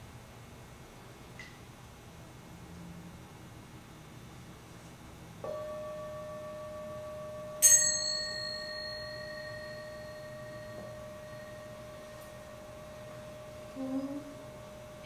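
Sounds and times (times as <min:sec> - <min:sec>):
high bright bell struck: 0:05.4 - 0:15.0
low-pitched bell ringing: 0:05.4 - 0:15.0.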